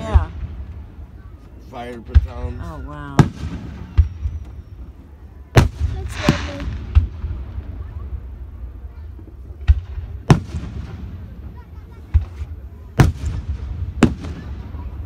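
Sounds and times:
fireworks bangs: 0:00.0 - 0:15.0
fireworks crackling hiss: 0:03.2 - 0:15.0.

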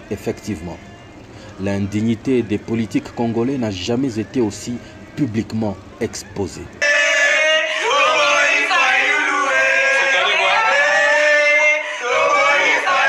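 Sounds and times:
crowd chanting slogans: 0:06.8 - 0:13.0.

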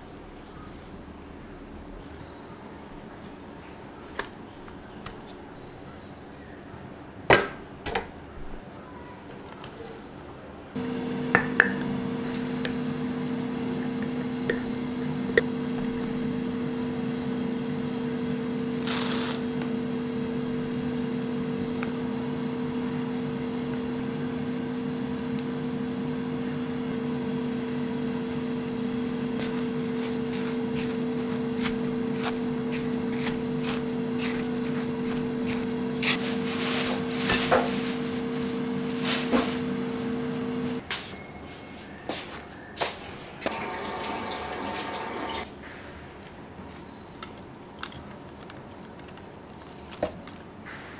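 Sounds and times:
air fryer fan hum: 0:10.8 - 0:40.8, 0:43.4 - 0:45.5
dry ingredients rustling: 0:28.7 - 0:39.6.

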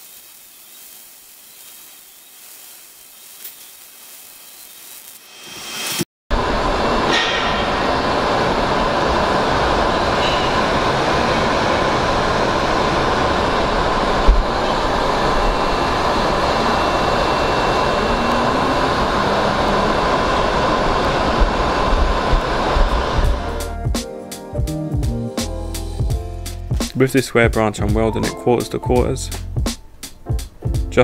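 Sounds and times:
faint high whine: 0:00.0 - 0:23.8
rushing workshop hum: 0:00.0 - 0:23.8.

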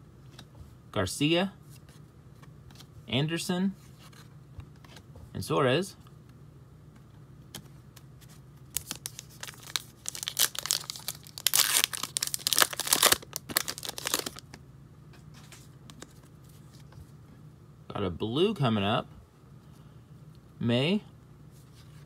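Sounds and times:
cards rustling: 0:07.5 - 0:14.6
foil wrapper tearing and crinkling: 0:08.7 - 0:14.5.

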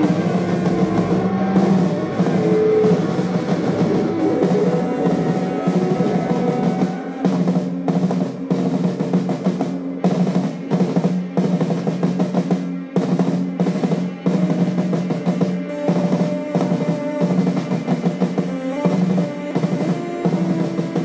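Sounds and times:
low droning note: 0:00.0 - 0:06.8
drums rolling and crashing: 0:00.0 - 0:21.0.

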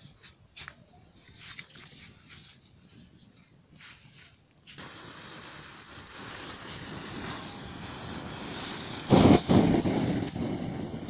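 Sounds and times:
flame roaring from burning bottle: 0:04.7 - 0:11.0.

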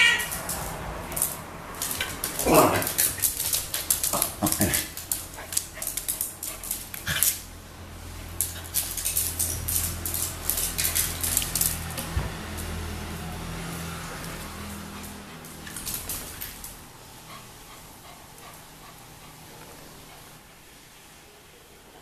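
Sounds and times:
claws skittering on tiles: 0:00.0 - 0:13.0, 0:13.6 - 0:16.9.

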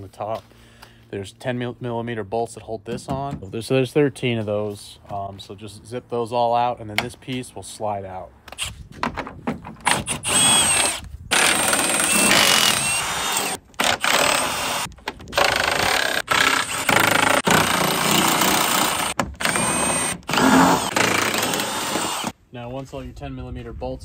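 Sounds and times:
impact driver running in bursts: 0:10.2 - 0:22.3.

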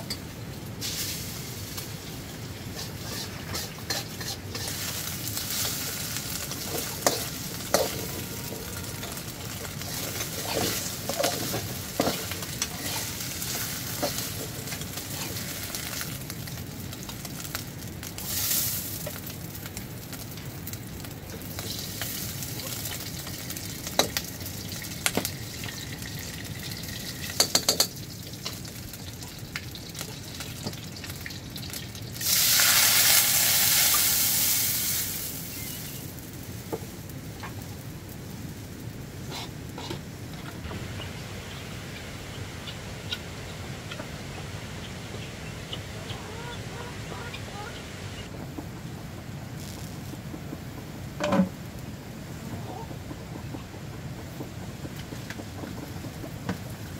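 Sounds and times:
food sizzling in a pan: 0:00.8 - 0:40.0, 0:49.6 - 0:50.0.

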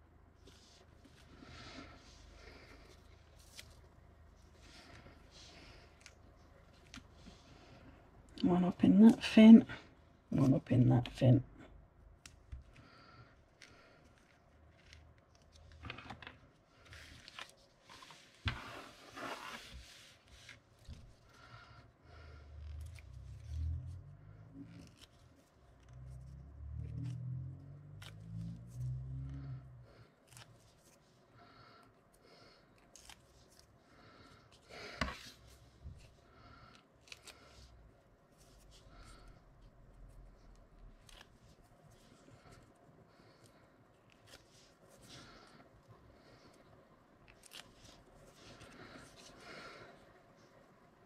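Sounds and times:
paper card rustling and scraping: 0:13.5 - 0:21.4.

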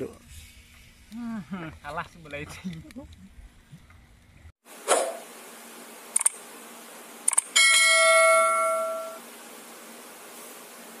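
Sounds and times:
notification bell ding: 0:07.6 - 0:09.2.

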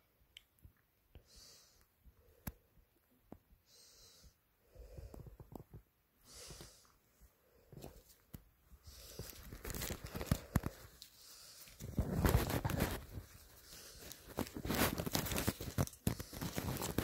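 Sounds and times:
rustling on fabric: 0:06.5 - 0:17.0.

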